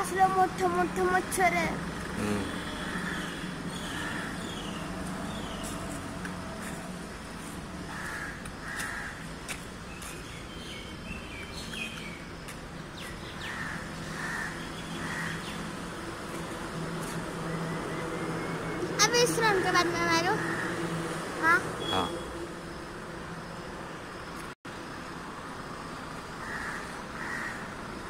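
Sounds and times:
birds chirping: 2.0s - 15.9s, 21.8s - 22.9s.

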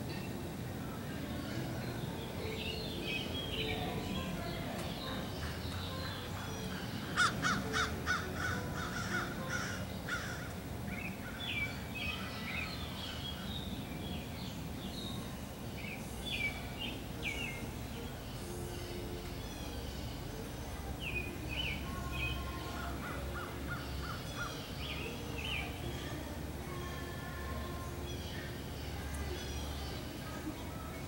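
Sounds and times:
harsh bird calls: 4.9s - 14.2s.

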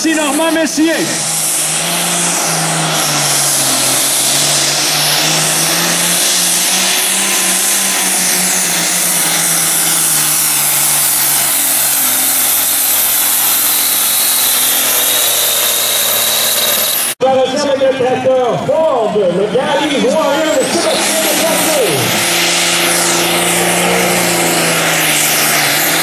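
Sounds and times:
diesel engine under heavy load: 0.0s - 26.0s
thin high turbo whistle: 10.3s - 17.2s.

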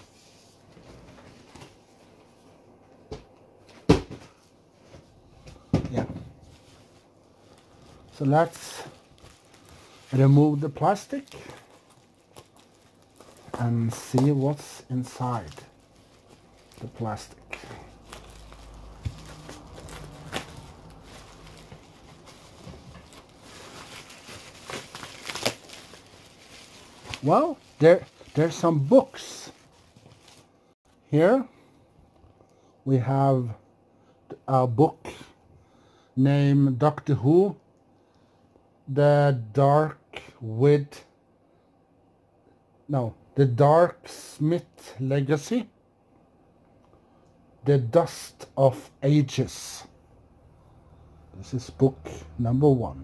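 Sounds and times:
plastic wrapping crinkling and tearing: 6.6s - 30.5s.

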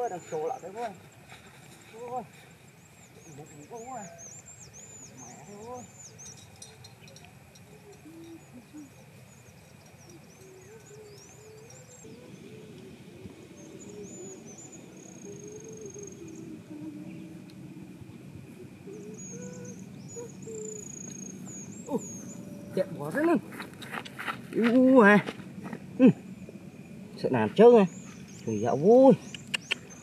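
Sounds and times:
faint insect hum: 0.0s - 30.0s
small birds chirping: 0.0s - 30.0s
low wavering tone: 2.8s - 23.0s.

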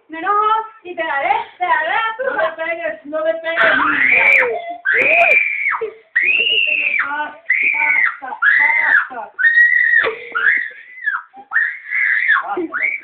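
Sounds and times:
boy mock crying: 3.5s - 13.0s.

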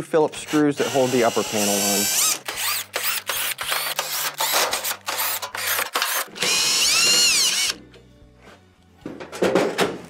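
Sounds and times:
cordless drill whining in pulses: 0.4s - 4.4s, 5.1s - 7.8s.

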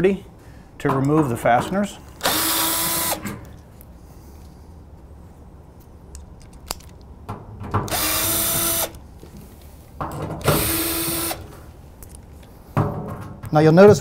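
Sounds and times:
drill motor whining: 2.2s - 3.3s, 7.9s - 9.0s, 10.5s - 11.4s.

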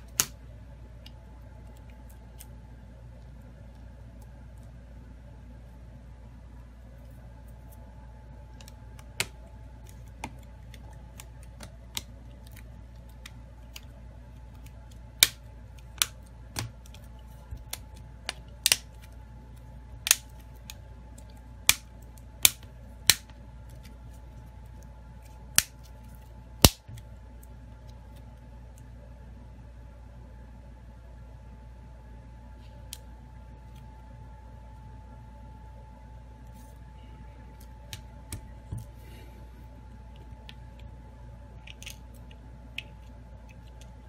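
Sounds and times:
low hum: 0.0s - 44.0s
plastic clips snapping: 17.6s - 18.9s, 20.0s - 20.8s.

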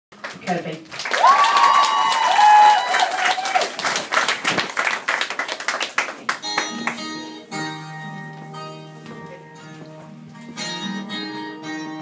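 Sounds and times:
audience clapping: 0.2s - 7.3s
audience cheering: 1.0s - 5.1s
guitar playing: 6.2s - 12.0s.

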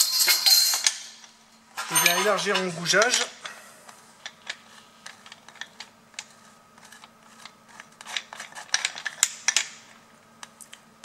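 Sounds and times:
small metal clicks and scrapes: 4.2s - 9.7s.

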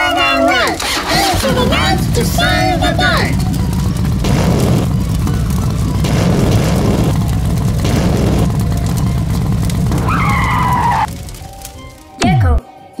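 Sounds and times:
race car engine: 0.8s - 11.1s
tyre screeching squeal: 10.0s - 11.1s.

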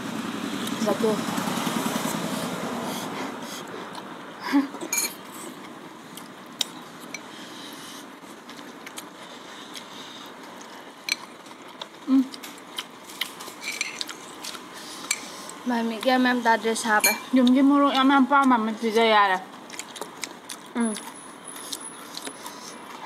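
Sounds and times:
forks clicking against glass bowls: 13.6s - 14.0s.

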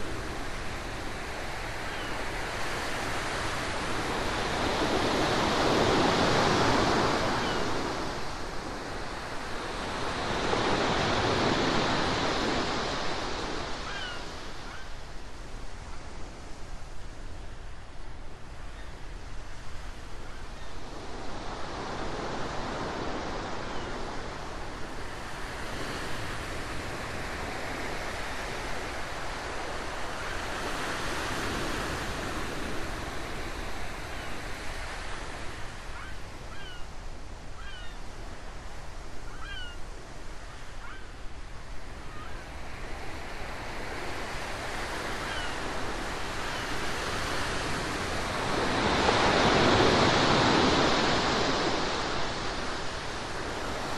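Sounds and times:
ocean waves washing in: 42.6s - 53.9s.

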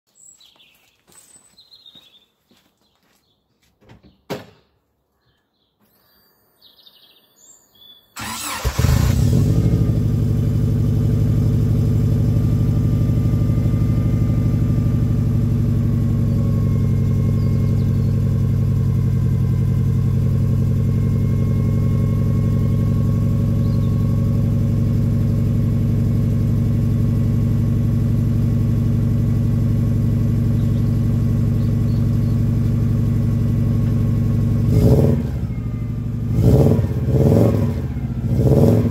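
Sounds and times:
car engine cranking: 8.2s - 9.9s
car engine idling: 8.2s - 38.9s.

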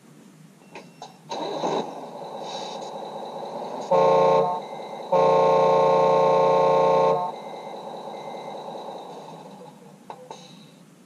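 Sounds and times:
model engine hum: 1.3s - 11.0s
model vehicle horn: 3.9s - 7.5s.

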